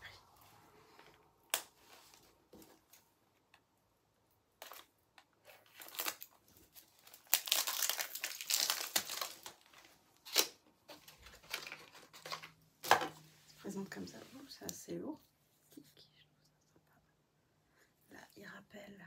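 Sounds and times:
plastic packaging crinkling: 5.5s - 13.0s.

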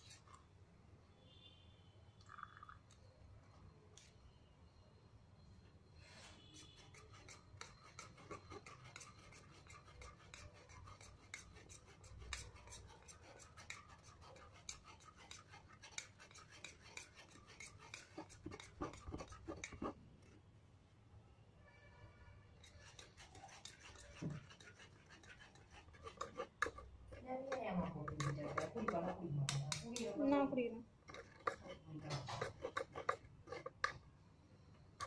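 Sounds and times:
spoon scraping a plastic strainer: 0.0s - 0.4s, 6.6s - 20.4s, 22.6s - 34.0s.

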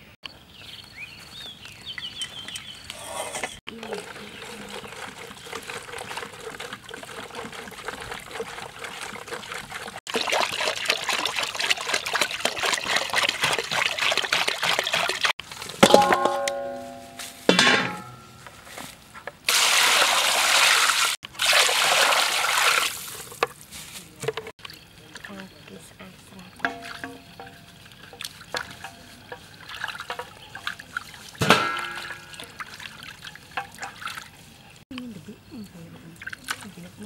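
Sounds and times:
water pouring and splashing: 3.6s - 18.1s, 19.4s - 34.8s, 36.2s - 37.0s
metal basin ringing: 15.8s - 18.6s, 26.2s - 34.1s.

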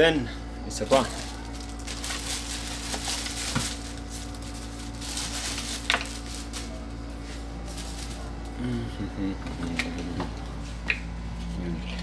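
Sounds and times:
plastic bag rustling: 0.8s - 8.4s.

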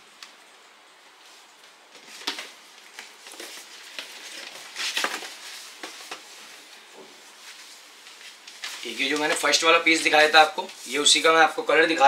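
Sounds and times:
plastic packaging crinkling: 1.9s - 6.8s, 7.4s - 11.6s.

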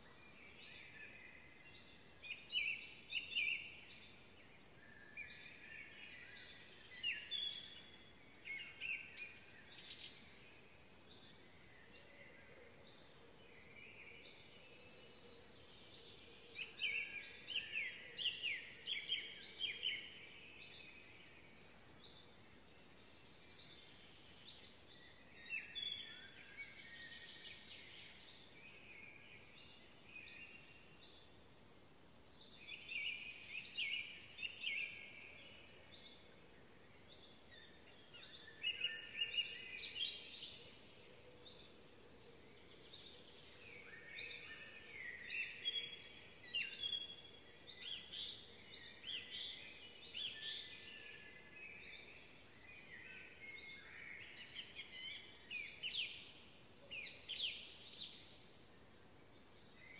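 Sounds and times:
faint background hiss: 0.0s - 59.9s
songbirds chirping: 0.0s - 59.9s.

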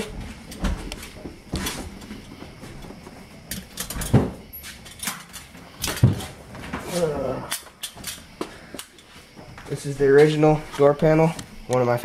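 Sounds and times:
objects knocking and rattling: 0.0s - 6.9s.

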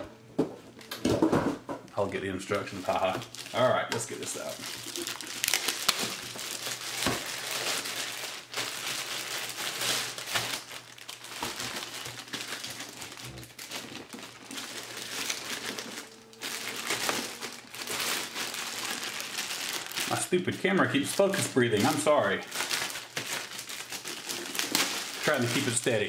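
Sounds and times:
plastic bag crinkling: 1.9s - 26.0s.

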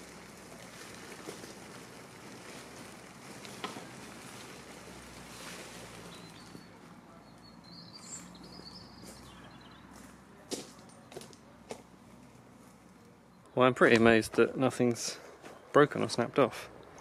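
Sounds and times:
faint outdoor air noise: 0.0s - 17.0s
bird chirping: 5.4s - 10.1s.

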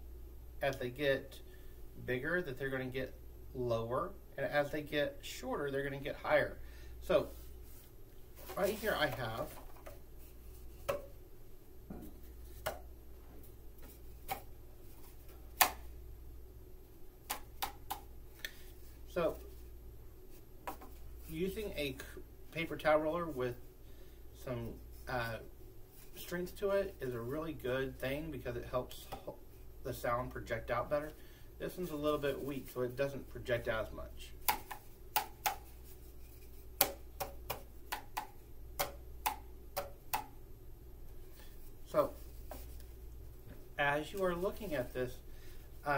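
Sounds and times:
cardboard tubes knocked by hand: 34.4s - 35.7s, 36.8s - 40.3s.

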